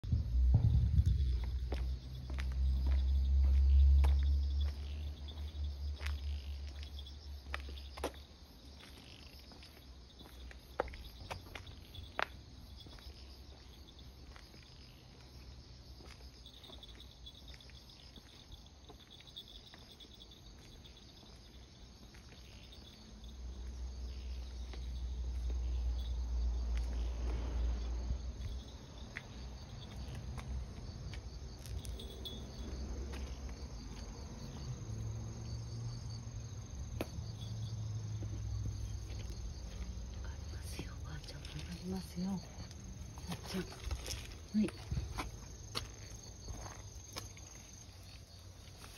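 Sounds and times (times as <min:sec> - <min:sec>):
low rumble: 0:00.0 - 0:06.4
insects chirping: 0:00.0 - 0:48.9.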